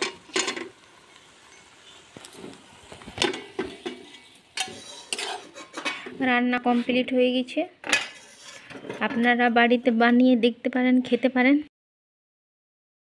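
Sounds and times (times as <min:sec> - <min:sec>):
metal pan and spoon clinking: 0:00.0 - 0:00.7, 0:01.4 - 0:01.8, 0:03.2 - 0:06.1, 0:07.8 - 0:09.5.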